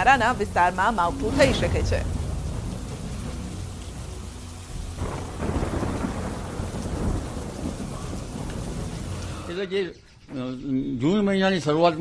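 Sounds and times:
deep rumble: 0:00.0 - 0:09.5
rain: 0:00.0 - 0:10.3
wind: 0:00.0 - 0:12.0.

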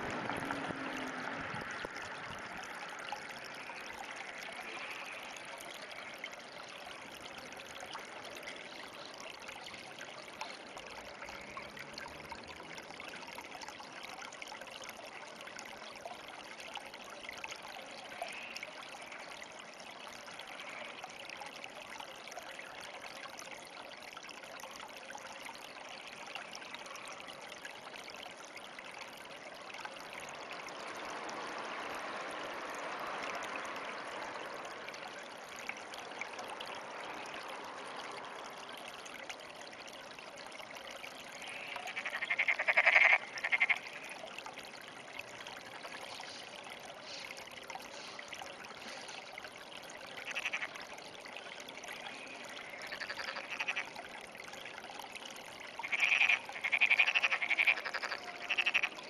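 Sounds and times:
frog calling: 0:41.4 - 0:44.2, 0:50.2 - 0:50.9, 0:52.1 - 0:54.0, 0:55.8 - 0:59.0.

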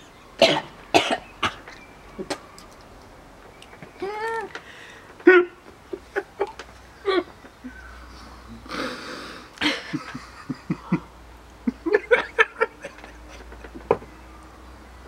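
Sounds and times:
noisy breath out: 0:04.6 - 0:05.2, 0:08.1 - 0:09.6
people laughing with food: 0:05.2 - 0:07.7, 0:08.7 - 0:14.0.

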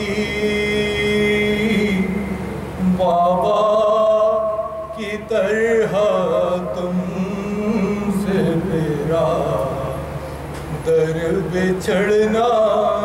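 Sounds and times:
man chanting: 0:00.0 - 0:10.2, 0:10.8 - 0:13.0.

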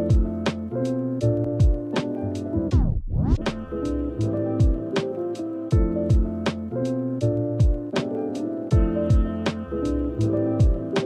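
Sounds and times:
deep kick drums: 0:00.0 - 0:00.4, 0:01.6 - 0:01.9, 0:04.6 - 0:04.9, 0:05.7 - 0:06.4, 0:07.6 - 0:07.9, 0:08.7 - 0:09.4, 0:10.6 - 0:10.9
background music with beat: 0:00.0 - 0:11.0.

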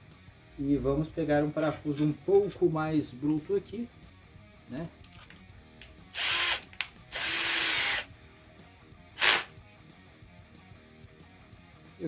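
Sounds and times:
cordless drill driving screw: 0:06.1 - 0:08.1, 0:09.2 - 0:09.5.

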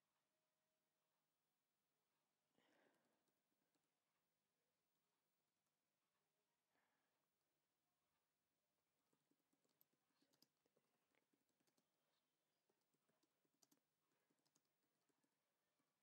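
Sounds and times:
faint keyboard typing: 0:07.9 - 0:16.0.

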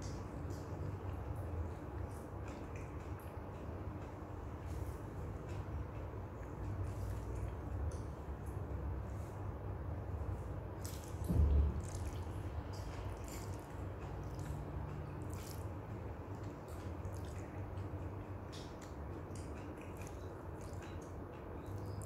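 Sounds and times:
wet chewing: 0:10.7 - 0:22.0.

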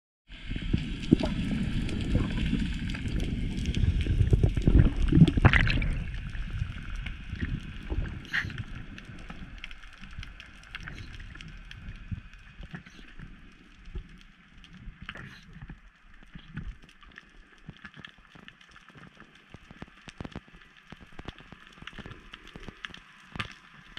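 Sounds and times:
water rushing underwater: 0:00.3 - 0:18.6
small clicks: 0:13.9 - 0:23.9.

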